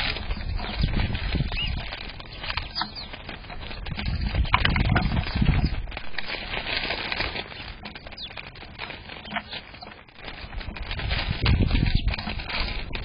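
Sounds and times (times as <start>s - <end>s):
wing flutters: 0.0s - 13.0s
sparrows chirping: 0.4s - 4.4s, 7.5s - 8.4s, 9.1s - 10.0s.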